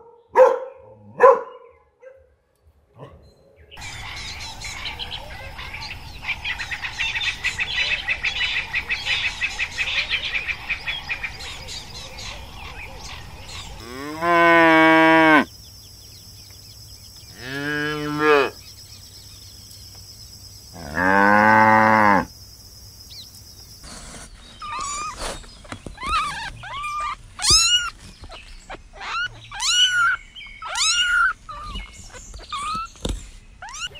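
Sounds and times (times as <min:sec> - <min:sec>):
high chirping chorus: 0:03.8 - 0:21.4, 0:22.1 - 0:33.9
cow mooing: 0:13.8 - 0:15.5, 0:17.3 - 0:18.6, 0:20.8 - 0:22.3.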